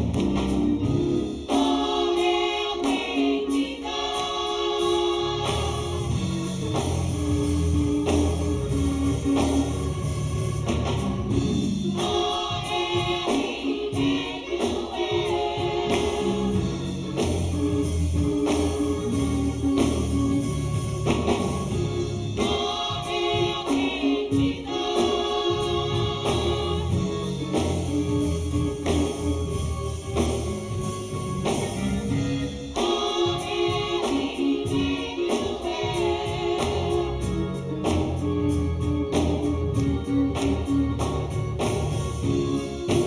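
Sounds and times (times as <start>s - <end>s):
band accompaniment with bass: 0.0s - 43.0s
group singing gospel in harmony: 0.0s - 43.0s.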